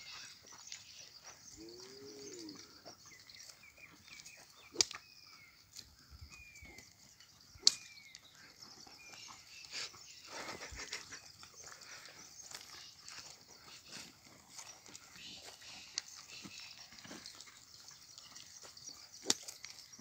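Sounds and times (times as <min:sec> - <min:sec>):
feet and plough scuffing soil: 0:00.0 - 0:02.0, 0:07.8 - 0:20.0.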